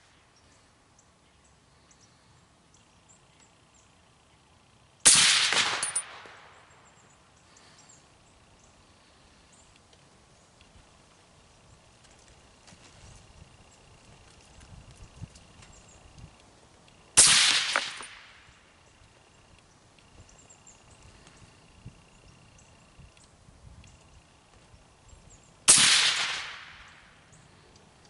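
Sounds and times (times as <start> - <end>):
suppressed rifle shots: 5.0 - 6.8, 17.2 - 18.5, 25.7 - 27.6.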